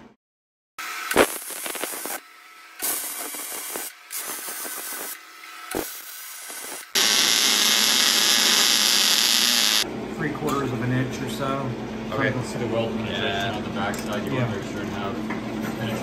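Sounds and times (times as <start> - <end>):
arc welding crackle and sizzle: 0.9 - 9.8
steady welding hiss: 1.1 - 2.2, 2.8 - 9.8.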